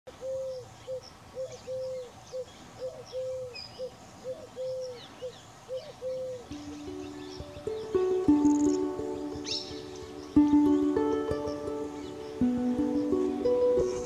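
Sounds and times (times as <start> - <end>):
small birds chirping faintly: 0.1 - 14.0
dove cooing: 0.2 - 5.0, 5.7 - 6.6.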